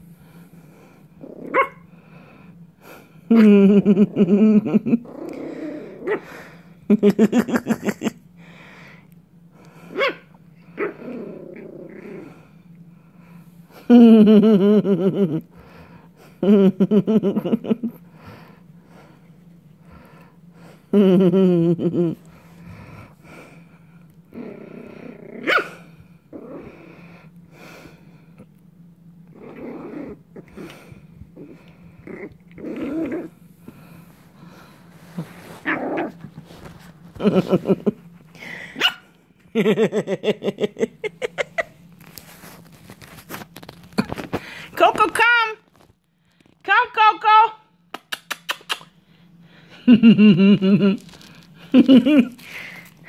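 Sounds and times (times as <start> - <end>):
puppy growling: 0.7 - 2.2, 3.3 - 6.7, 9.6 - 12.7, 21.8 - 27.3, 29.2 - 38.2
puppy barking: 1.5 - 1.8, 10.0 - 10.2, 38.8 - 39.1
puppy yapping: 1.5 - 1.8.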